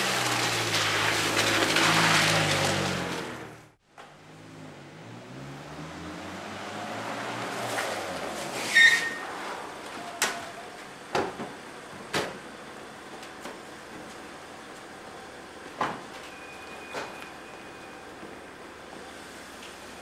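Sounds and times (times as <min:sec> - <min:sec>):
brake squeal: 0:00.0 - 0:03.8, 0:06.2 - 0:11.0, 0:16.1 - 0:20.0.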